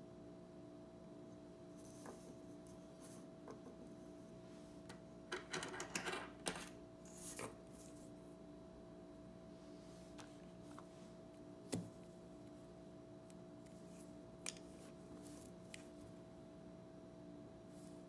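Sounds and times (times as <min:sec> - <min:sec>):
faint room hum: 0:00.0 - 0:18.0
mechanical pencils clicking and tapping: 0:05.3 - 0:06.7.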